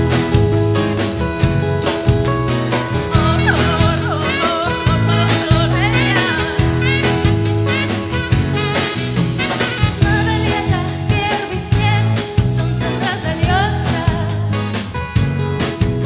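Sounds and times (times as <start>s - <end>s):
drum kit beat: 0.0s - 16.0s
electric guitar and bass: 0.0s - 16.0s
wavering melody line: 2.7s - 9.6s.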